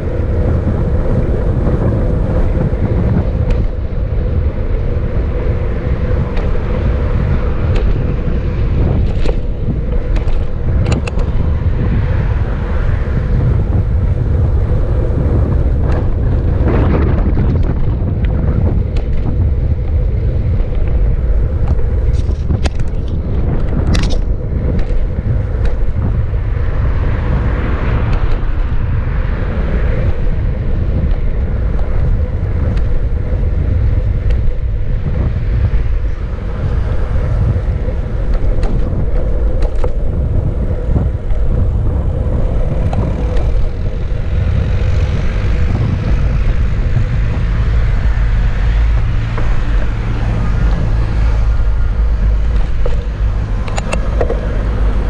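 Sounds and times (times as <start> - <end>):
tyre noise on asphalt: 0.0 - 55.0
wind buffeting microphone: 0.0 - 55.0.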